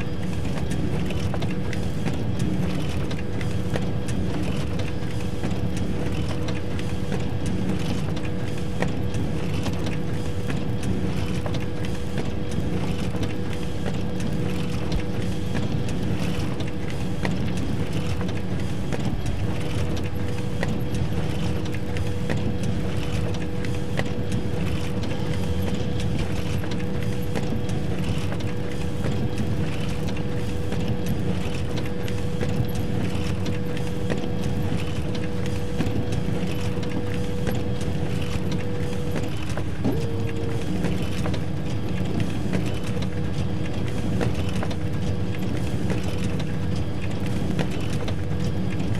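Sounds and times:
constant whine: 0.0 - 48.9
photocopier hum and rumble: 0.0 - 48.9.

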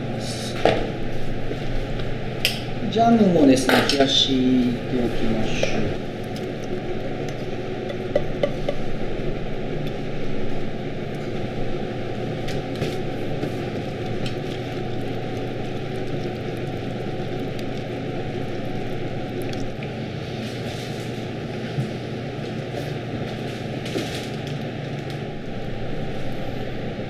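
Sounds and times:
steady machine hum: 0.0 - 27.0.

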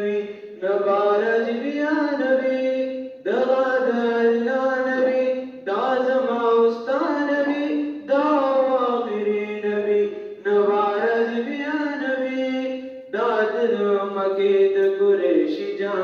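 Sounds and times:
boy chanting unaccompanied: 0.0 - 16.0.

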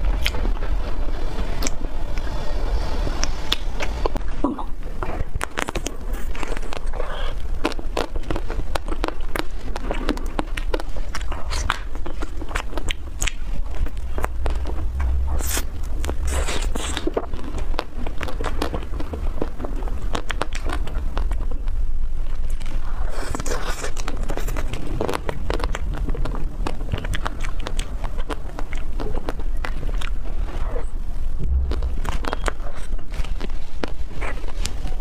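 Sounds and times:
ice cream shell crunching: 4.9 - 30.9
wet mouth clicks and chewing: 5.4 - 30.9, 31.5 - 34.8.

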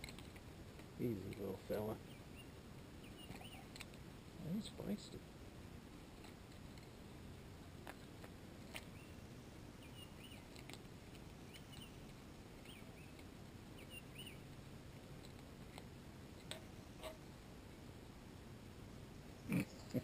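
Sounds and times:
small bird chirping: 0.0 - 4.9, 7.8 - 17.3.

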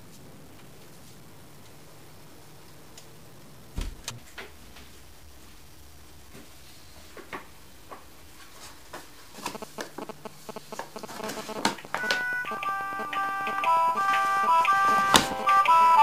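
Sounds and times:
mobile phone ringtone: 9.5 - 16.0
paper rustling and crinkling: 10.8 - 12.3.

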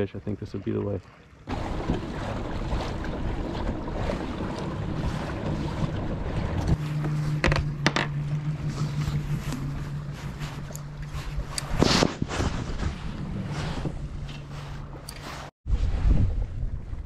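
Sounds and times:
water rushing past kayak: 1.4 - 7.3
wind buffeting microphone: 15.7 - 17.0.

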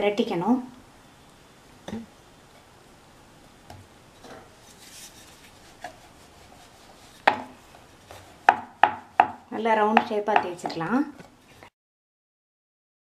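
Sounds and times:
rolling pin rubbing dough: 4.5 - 11.3
rolling pin knocking wooden board: 7.2 - 7.5, 8.4 - 10.9.

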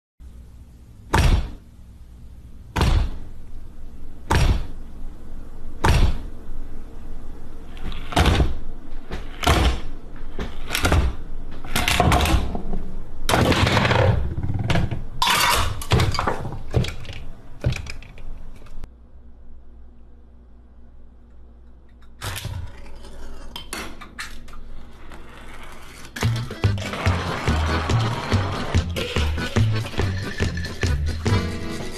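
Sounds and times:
objects knocking and clattering: 10.4 - 18.8, 28.8 - 31.4.

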